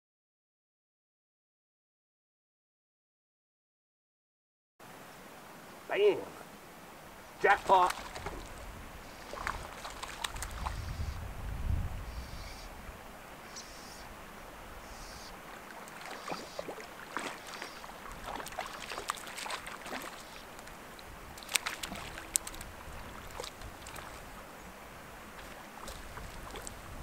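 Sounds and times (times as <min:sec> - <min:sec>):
fish splashing at water surface: 0:07.6 - 0:10.8, 0:15.7 - 0:24.4, 0:25.3 - 0:26.8
wind rumble on microphone: 0:08.1 - 0:13.1, 0:21.0 - 0:24.4, 0:25.8 - 0:27.0.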